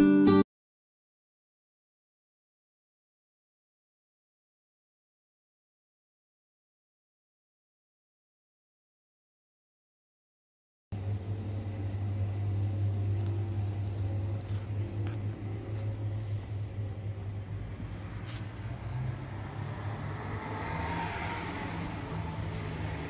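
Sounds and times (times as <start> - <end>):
rushing traffic: 11.0 - 23.0
vehicle engine humming: 11.0 - 23.0.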